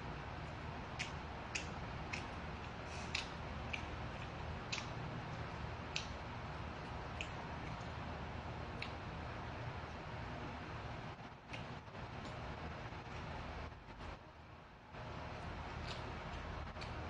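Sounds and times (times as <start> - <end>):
low steady hum: 0.0 - 17.0
chewing: 0.4 - 10.0, 11.4 - 13.4, 15.0 - 17.0.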